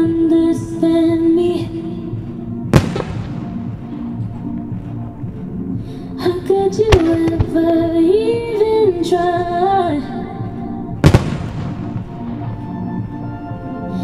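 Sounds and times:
song with sung melody: 0:00.0 - 0:14.0
firework shells bursting: 0:02.7 - 0:04.2, 0:06.8 - 0:07.9, 0:11.0 - 0:12.4.

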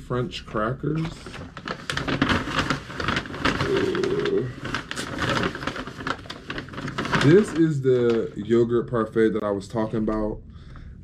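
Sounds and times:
plastic packaging crinkling: 0:01.0 - 0:08.6.

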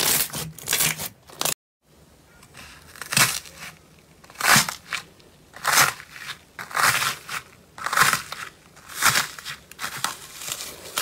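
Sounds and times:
slime cracking and squishing: 0:02.8 - 0:11.0.

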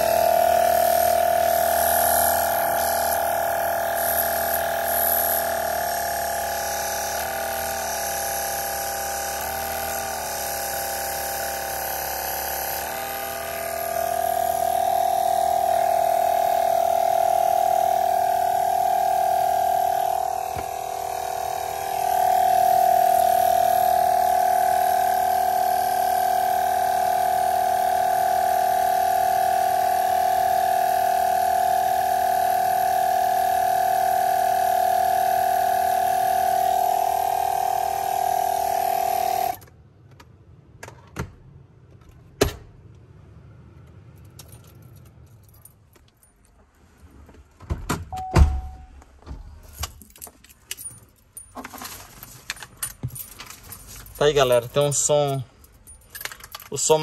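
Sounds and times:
air compressor humming: 0:00.0 - 0:39.7, 0:51.6 - 0:57.0.

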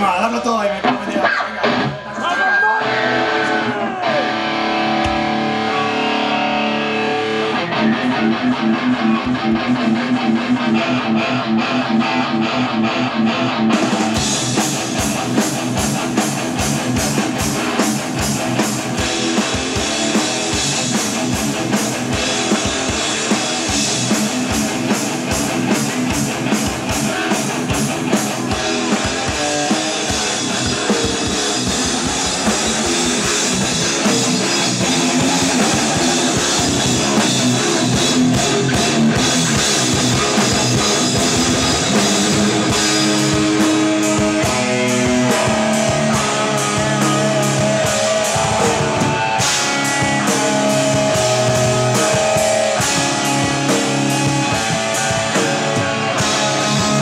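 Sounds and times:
electric guitar riff: 0:00.0 - 0:57.0
live rock band playing: 0:00.0 - 0:57.0
drum kit with cymbals: 0:13.7 - 0:57.0.

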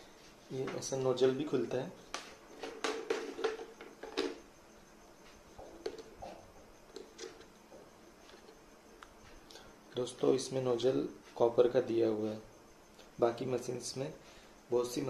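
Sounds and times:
plastic clicks and knocks: 0:02.1 - 0:04.4.

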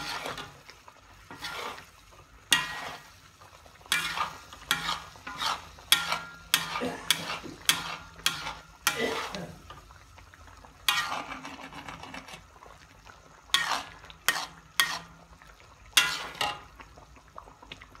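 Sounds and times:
metal ladle scraping a pan: 0:00.0 - 0:09.8, 0:10.8 - 0:12.5, 0:13.5 - 0:15.3, 0:15.9 - 0:16.8.

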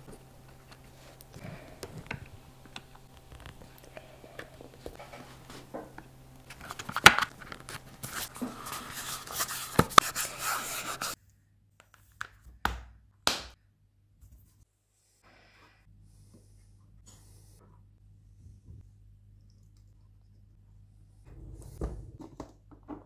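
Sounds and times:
hands rubbing leather: 0:07.7 - 0:11.2.

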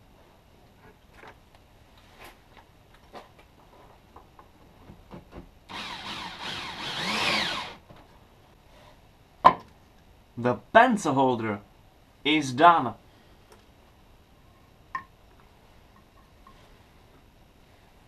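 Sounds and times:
electric drill driving a screw: 0:05.7 - 0:07.8.

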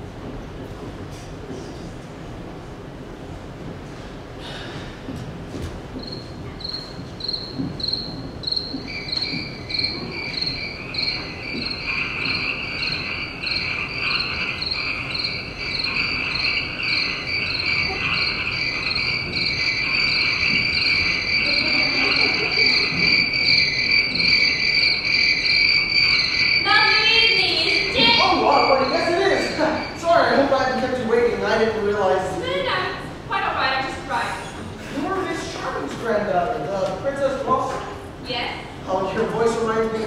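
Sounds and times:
low cricket trill: 0:06.0 - 0:30.0
high cricket chirp: 0:06.0 - 0:30.6.

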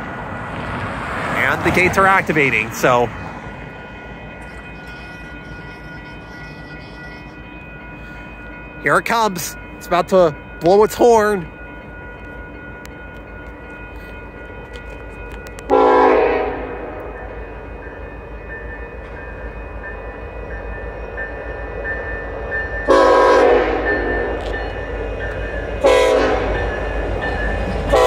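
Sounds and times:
crossing signal bell ringing: 0:01.4 - 0:28.0
locomotive air horn: 0:15.7 - 0:17.0, 0:22.9 - 0:24.5, 0:25.8 - 0:26.6.

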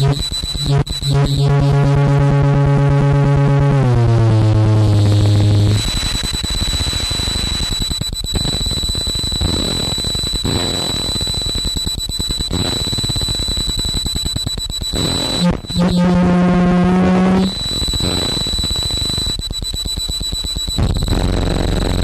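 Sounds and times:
loud buzzing drone: 0:00.0 - 0:07.7, 0:08.4 - 0:11.6, 0:12.3 - 0:14.1, 0:14.8 - 0:19.4, 0:20.8 - 0:22.0
stuttering noise music: 0:00.0 - 0:22.0
thin high whine: 0:00.0 - 0:22.0.

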